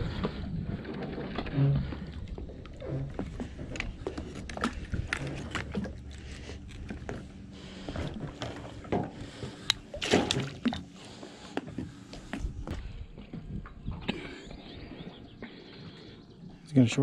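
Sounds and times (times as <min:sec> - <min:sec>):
fish thrashing: 0:00.0 - 0:12.6
water splash of net: 0:10.0 - 0:10.6.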